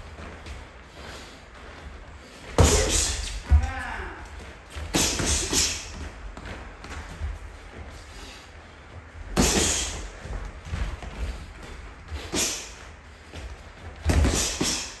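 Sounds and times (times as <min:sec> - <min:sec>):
sharp breaths: 0:04.8 - 0:06.1, 0:07.6 - 0:10.4, 0:11.2 - 0:15.0.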